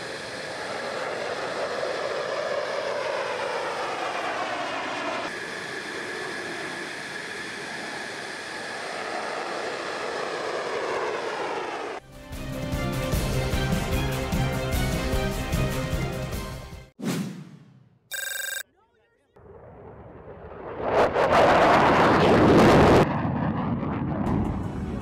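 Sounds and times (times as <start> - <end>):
jet engine roaring: 0.0 - 12.0, 19.4 - 25.0.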